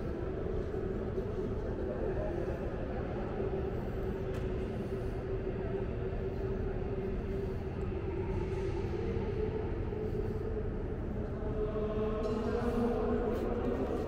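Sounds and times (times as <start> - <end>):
low rumble with held hum: 0.0 - 14.0.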